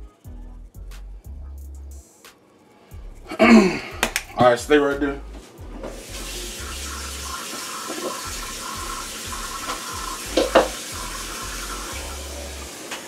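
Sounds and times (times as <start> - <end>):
tap water running into sink: 5.8 - 13.0.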